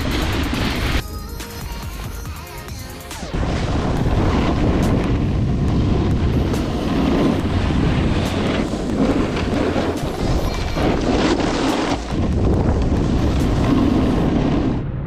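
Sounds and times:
background music: 0:00.0 - 0:14.1
wind rushing over microphone: 0:03.4 - 0:15.0.

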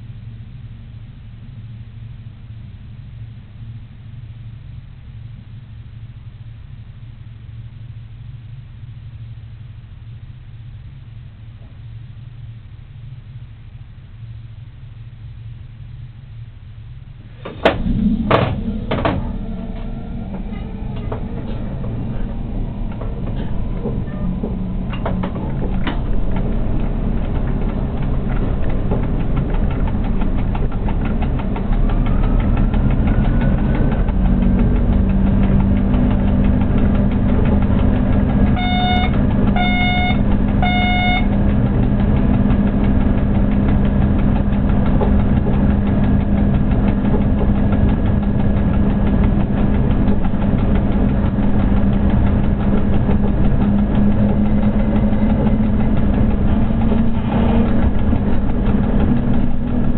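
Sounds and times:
train running noise: 0:00.0 - 0:59.9
rising whine: 0:15.6 - 0:59.9
short beeps: 0:38.6 - 0:41.3.

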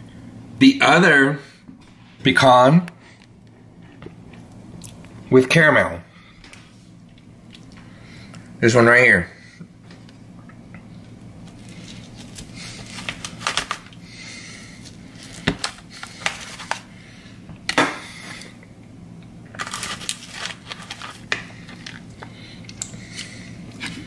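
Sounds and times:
aluminium foil pan crinkling: 0:11.5 - 0:14.0, 0:14.8 - 0:16.9, 0:19.5 - 0:22.1.

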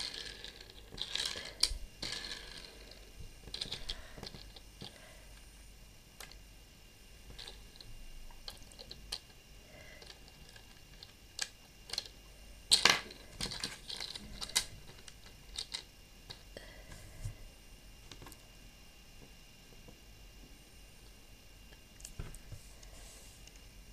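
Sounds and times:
plastic toy parts clicking: 0:12.7 - 0:15.9.

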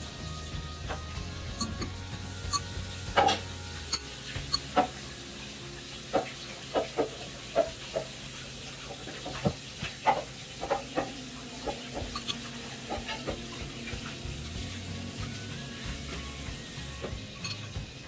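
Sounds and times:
metal spoon clinking in ceramic bowl: 0:17.4 - 0:17.6.

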